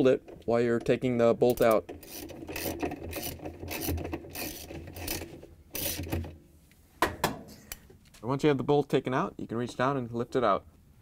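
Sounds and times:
ratchet wrench clicking: 0:01.6 - 0:05.2.

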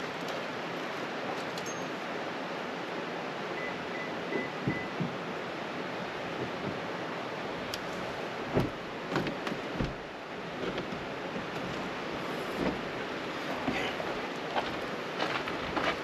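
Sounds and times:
river water rushing: 0:00.0 - 0:16.0
soft knocks and clicks: 0:06.3 - 0:06.9.

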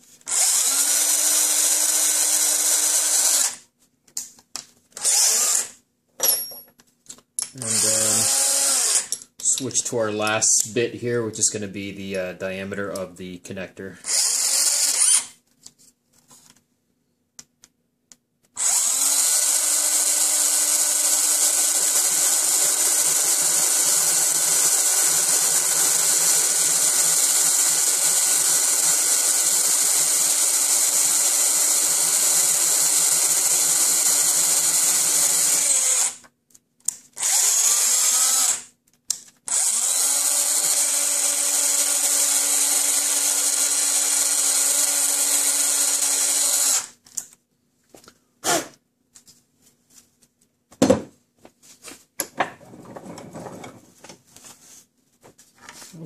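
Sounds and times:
electric drill drilling plastic: 0:00.3 - 0:03.6, 0:05.0 - 0:05.8, 0:07.6 - 0:09.1, 0:14.0 - 0:15.3, 0:18.6 - 0:36.2, 0:37.2 - 0:38.7, 0:39.5 - 0:46.9.

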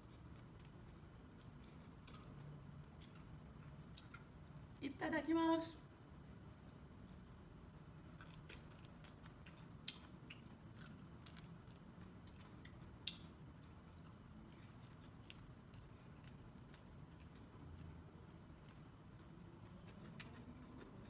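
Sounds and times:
chewing corn kernels: 0:08.0 - 0:21.0.

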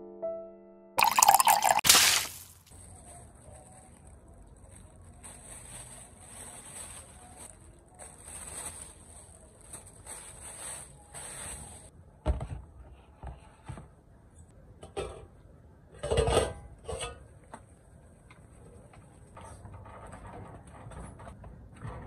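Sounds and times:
plastic bags rustling and crinkling: 0:01.8 - 0:11.9.

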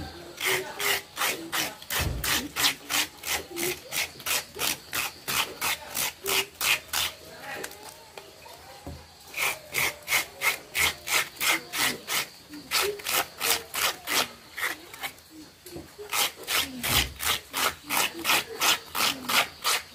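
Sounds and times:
cucumber being scraped: 0:00.3 - 0:08.0, 0:09.3 - 0:19.9.

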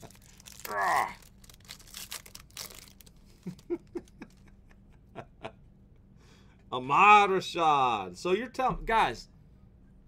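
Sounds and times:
paper crinkling: 0:00.0 - 0:04.2.

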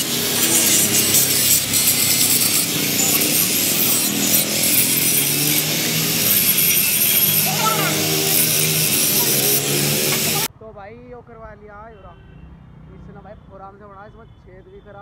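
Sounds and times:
angle grinder grinding steel: 0:00.0 - 0:10.5.

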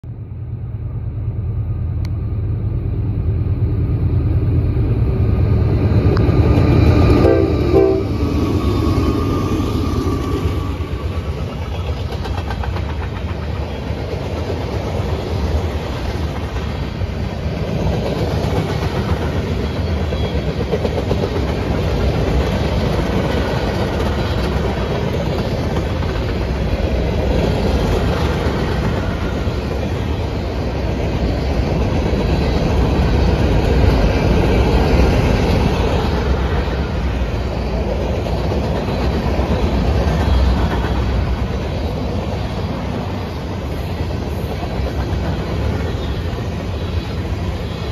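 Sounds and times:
freight train wheels rumbling on rails: 0:00.0 - 0:47.9
clickety-clack over rail joints: 0:10.2 - 0:47.9.

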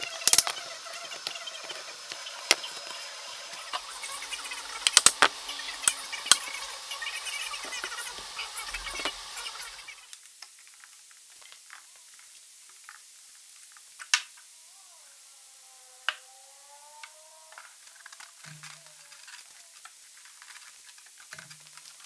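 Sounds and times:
faint wavering tone: 0:14.6 - 0:19.8.

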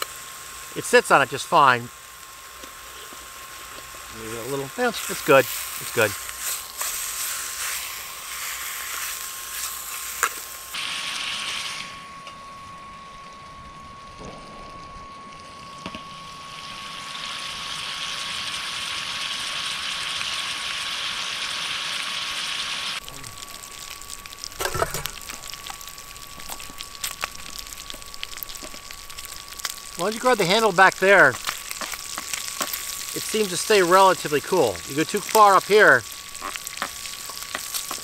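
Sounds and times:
bacon sizzling in a pan: 0:00.0 - 0:12.0, 0:14.1 - 0:38.0
stove fan whine: 0:00.0 - 0:38.0.

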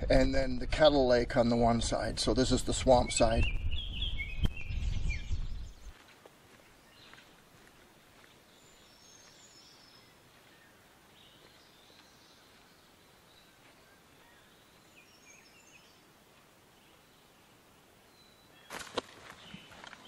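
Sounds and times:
faint bird chirps: 0:16.7 - 0:20.0.

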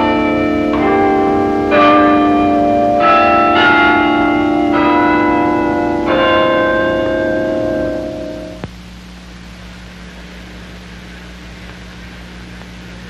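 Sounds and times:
bells ringing different notes: 0:00.0 - 0:08.6.

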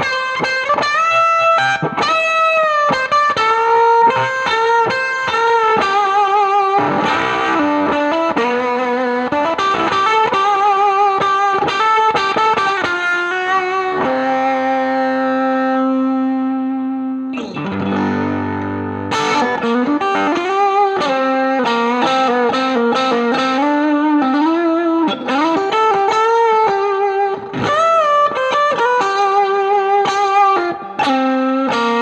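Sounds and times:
fuzzy electric guitar: 0:00.0 - 0:32.0.

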